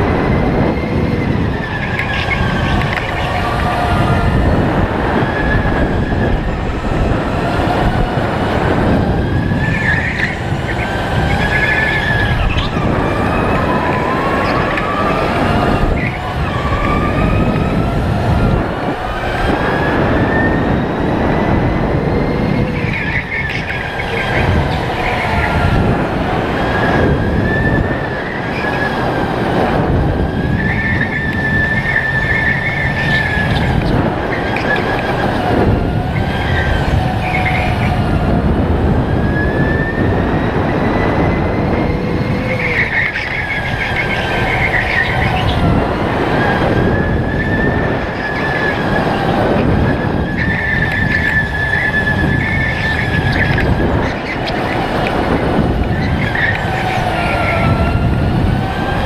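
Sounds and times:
tyre and chassis road noise: 0.0s - 59.0s
tyre squeals: 9.4s - 17.5s, 30.2s - 37.9s, 39.4s - 59.0s.

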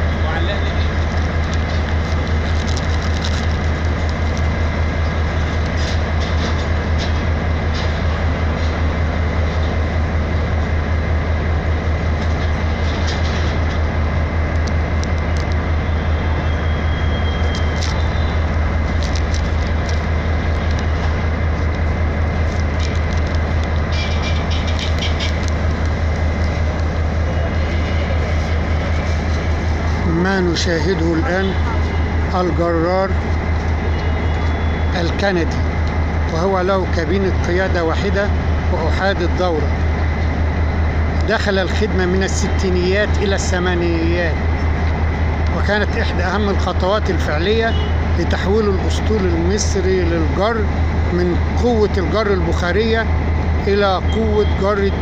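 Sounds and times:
locomotive engine idling: 0.0s - 55.0s.

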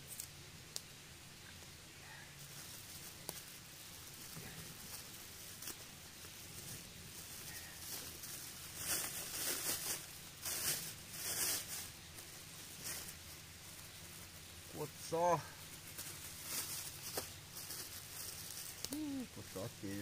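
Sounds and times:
plastic bag crinkling: 2.5s - 14.2s.

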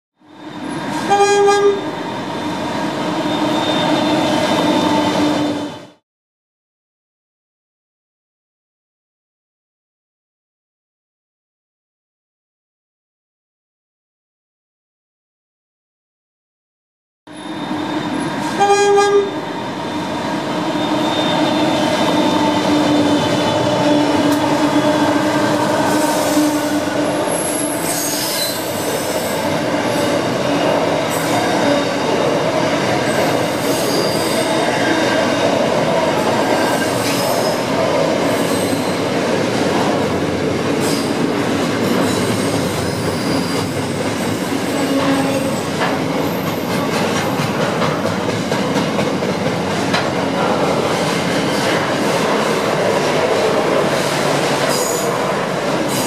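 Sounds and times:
high wheel squeal: 0.2s - 1.2s, 1.9s - 5.7s, 17.3s - 18.7s, 19.3s - 32.2s, 33.0s - 35.2s, 36.2s - 39.1s, 41.9s - 44.0s, 54.0s - 55.2s
diesel locomotives passing: 0.2s - 6.0s, 17.3s - 56.0s
train horn blast: 0.9s - 1.9s, 17.3s - 28.6s, 44.7s - 45.7s.

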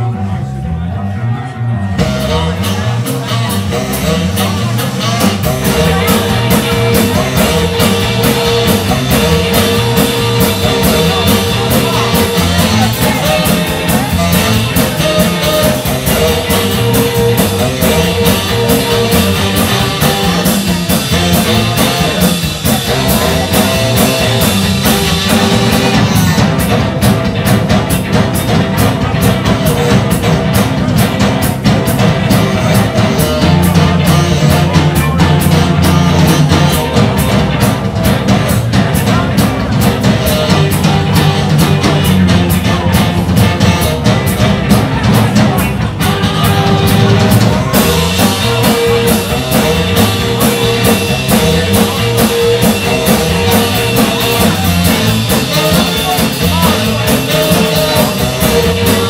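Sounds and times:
tenor saxophone: 0.0s - 26.7s, 39.8s - 44.5s, 45.8s - 59.0s
rock and roll band playing: 0.0s - 59.0s
pounding drum kit: 1.9s - 59.0s.

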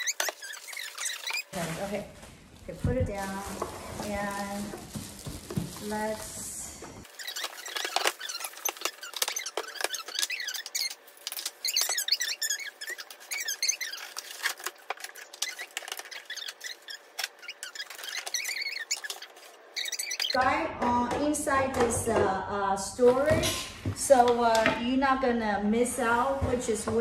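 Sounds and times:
plastic wrapping crinkling: 0.0s - 6.4s, 7.0s - 20.4s.

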